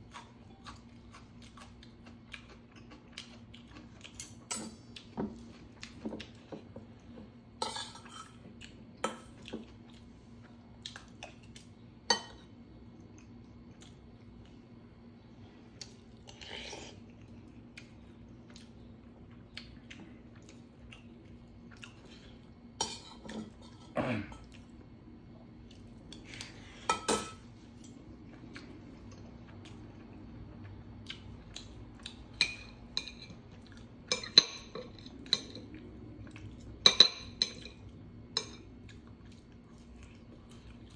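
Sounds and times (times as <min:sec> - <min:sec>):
cutlery clinking on dishes: 0:04.1 - 0:04.8, 0:07.6 - 0:08.4, 0:26.8 - 0:27.4, 0:36.8 - 0:37.8.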